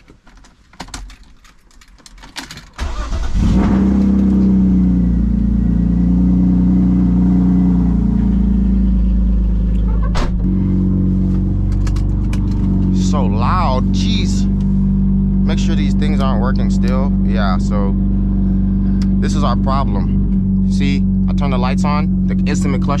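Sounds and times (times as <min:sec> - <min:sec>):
car starter cranking: 0:00.1 - 0:04.6
car engine idling: 0:02.8 - 0:23.0.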